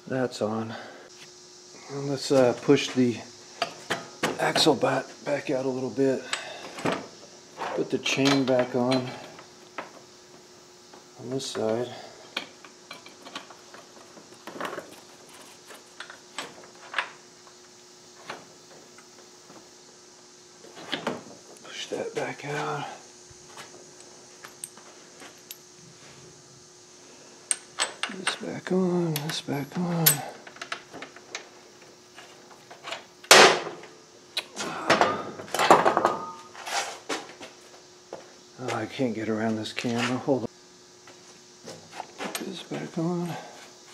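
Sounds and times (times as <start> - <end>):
metal tools clanking: 7.6 - 9.3, 29.1 - 30.8.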